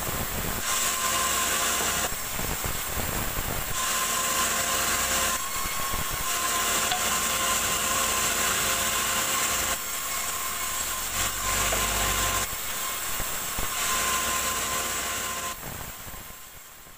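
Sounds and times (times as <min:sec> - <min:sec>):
band saw cutting wood: 0:00.6 - 0:15.8.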